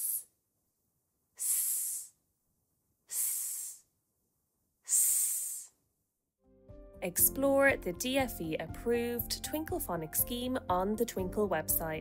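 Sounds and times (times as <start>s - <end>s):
woman making a hissing s sound: 0.0s - 0.3s, 1.4s - 2.2s, 3.0s - 3.9s, 4.8s - 5.8s.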